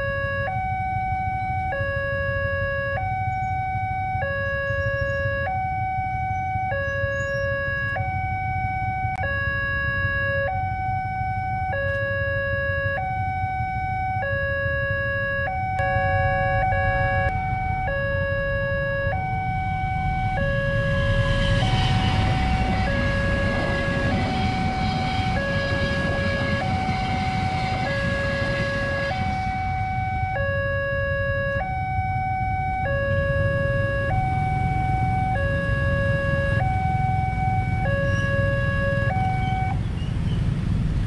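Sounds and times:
level-crossing alarm two-tone: 0.0s - 39.8s
train rumbling past: 18.4s - 30.5s.

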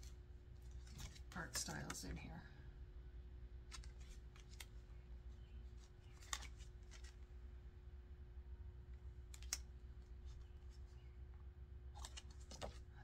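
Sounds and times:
cards flipping and sliding: 0.0s - 2.0s, 3.6s - 7.4s, 9.2s - 11.0s, 12.0s - 12.9s
low steady hum: 0.0s - 13.0s.

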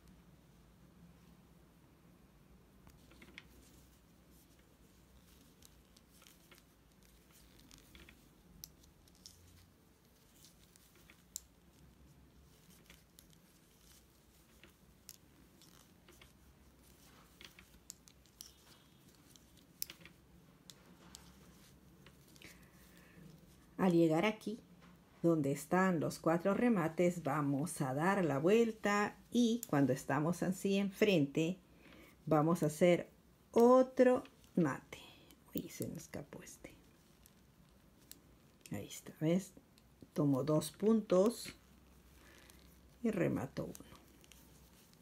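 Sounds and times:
knitting needles tapping: 2.8s - 23.6s, 35.2s - 36.0s, 36.8s - 38.8s, 39.6s - 45.0s
yarn sliding: 2.9s - 24.0s, 40.1s - 45.0s.

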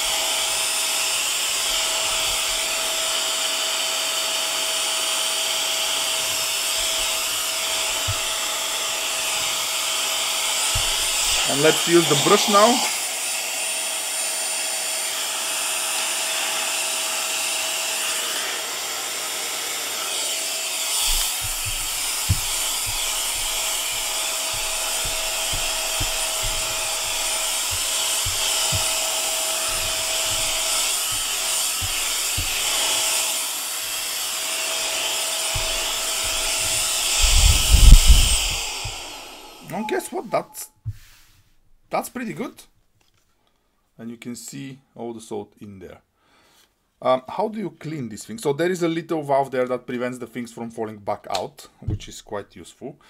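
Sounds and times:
nozzle knocking and rubbing: 0.0s - 3.2s, 5.8s - 12.7s, 20.8s - 39.3s, 40.9s - 41.6s
handheld vacuum whining: 0.0s - 41.0s.

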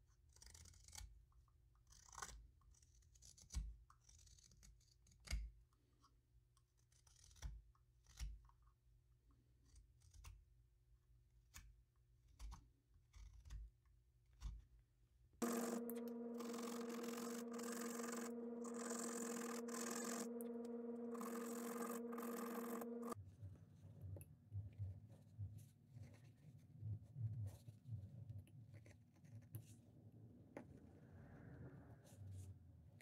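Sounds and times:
machine hum with hiss: 15.4s - 23.2s.

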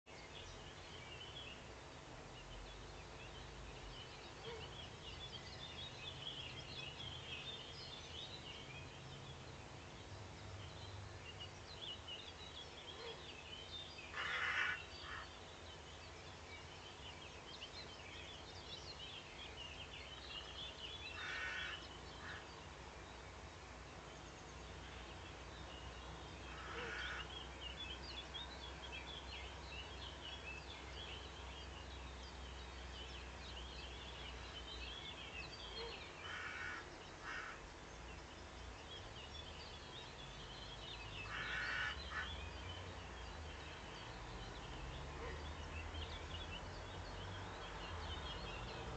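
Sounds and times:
songbirds singing: 0.0s - 48.9s
crows cawing harshly: 14.1s - 15.2s, 21.2s - 22.4s, 26.5s - 27.3s, 36.2s - 37.6s, 41.3s - 42.3s.

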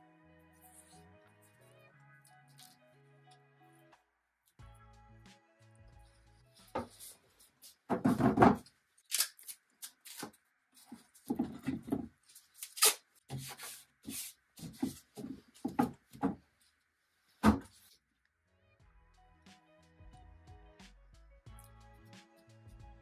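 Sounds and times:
wooden drawers knocking and scraping: 7.9s - 8.6s, 11.3s - 12.1s.

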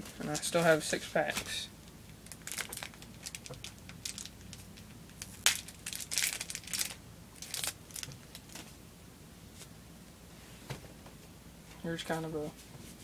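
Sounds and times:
wrapper crinkling and tearing: 2.2s - 8.7s.

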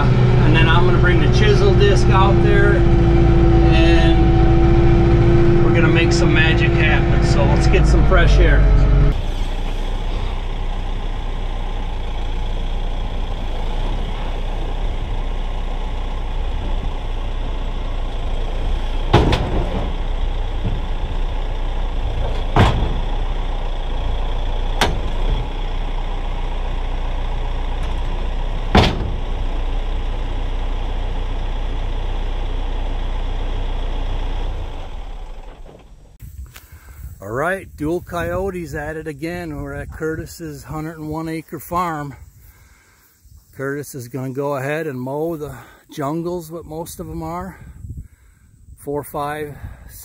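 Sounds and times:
tractor diesel engine running: 0.0s - 43.7s
sharp knocks: 19.1s - 20.0s, 22.2s - 23.2s, 28.7s - 29.3s.

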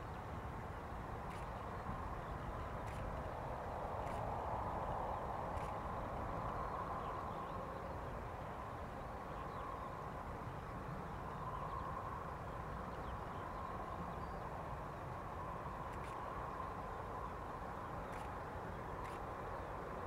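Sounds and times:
distant jet engines whining: 0.1s - 20.0s.

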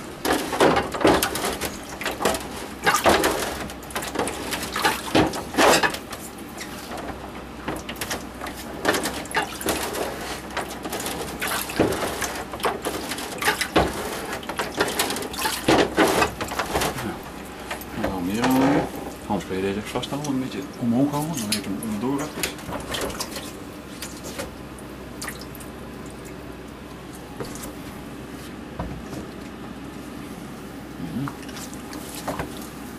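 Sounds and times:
liquid splashing and sloshing: 0.0s - 27.9s, 31.3s - 32.9s.

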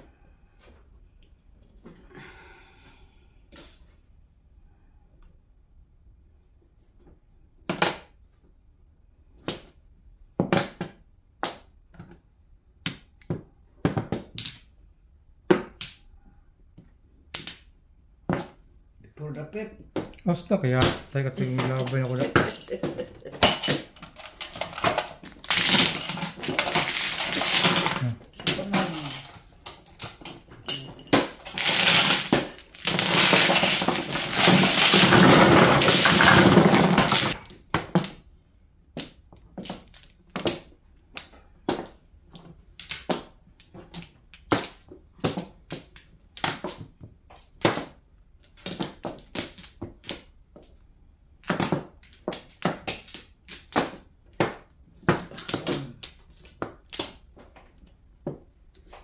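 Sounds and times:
mahjong tiles clattering: 20.8s - 37.5s
plastic tiles clacking on table: 21.1s - 38.1s.

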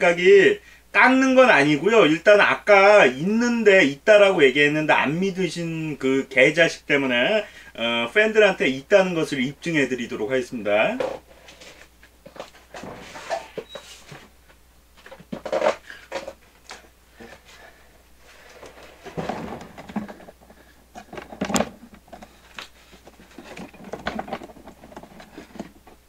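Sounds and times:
rustling and handling things: 10.8s - 26.0s.

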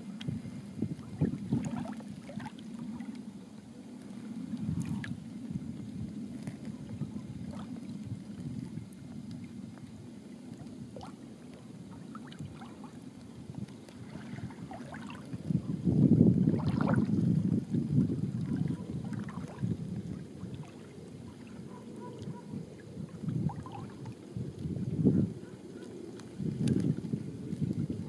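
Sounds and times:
faint splashes: 0.0s - 28.0s
water rushing along a hull: 0.0s - 28.0s.

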